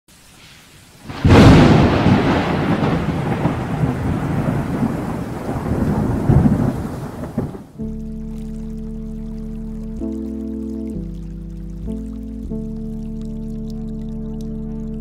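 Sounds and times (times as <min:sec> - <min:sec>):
rain: 0:00.1 - 0:15.0
thunder crack and rumble: 0:01.1 - 0:07.8
music with held notes: 0:07.8 - 0:15.0.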